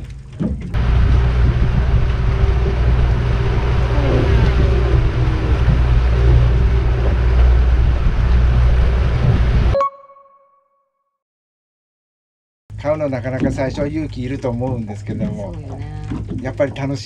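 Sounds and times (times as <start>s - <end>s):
outboard engine drone: 0.0s - 9.8s, 12.7s - 17.0s
water rushing: 0.0s - 9.8s
wind: 0.0s - 9.8s.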